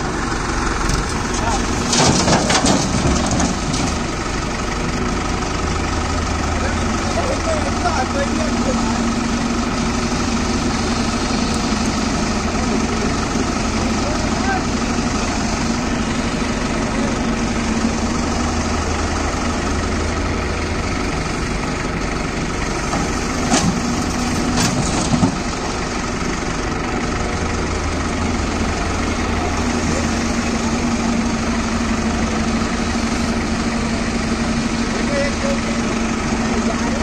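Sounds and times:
diesel engines running: 0:00.0 - 0:37.0
soil dumped into steel trailer: 0:01.0 - 0:04.2, 0:22.9 - 0:25.5.

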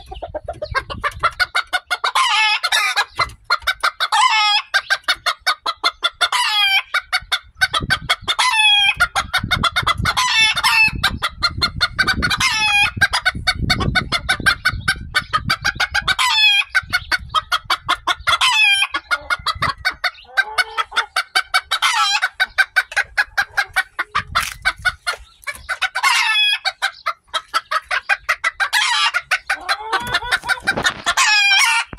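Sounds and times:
chickens clucking: 0:00.0 - 0:31.9
roosters crowing: 0:01.6 - 0:05.0, 0:06.2 - 0:07.0, 0:08.4 - 0:11.2, 0:12.0 - 0:13.6, 0:15.8 - 0:16.9, 0:18.0 - 0:31.9.

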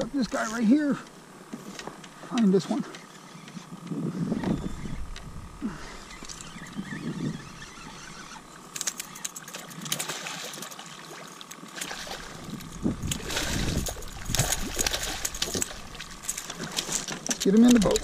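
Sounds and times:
fish thrashing and splashing: 0:06.1 - 0:18.0.

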